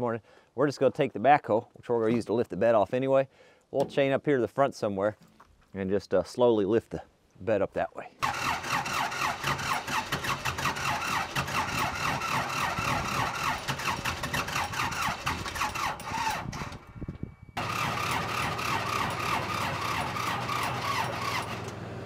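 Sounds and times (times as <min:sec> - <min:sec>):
diesel engine starting and running: 0:08.2 - 0:17.0, 0:17.6 - 0:22.0.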